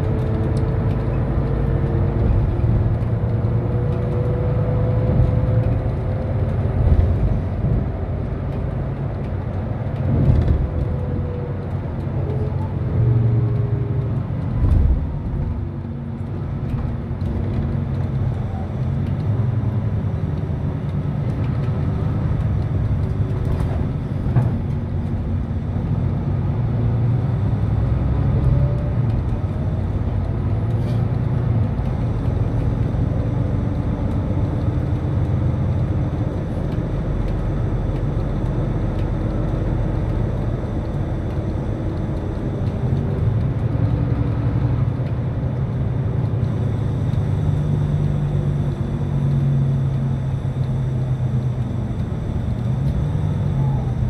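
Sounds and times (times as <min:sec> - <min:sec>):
bus engine and road rumble: 0:00.0 - 0:54.0.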